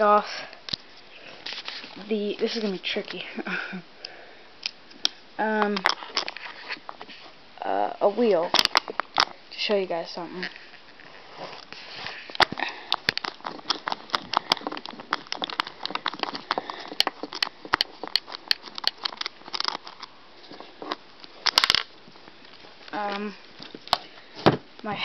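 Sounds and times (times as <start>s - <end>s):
nut driver clicking and scraping: 12.3s - 21.9s.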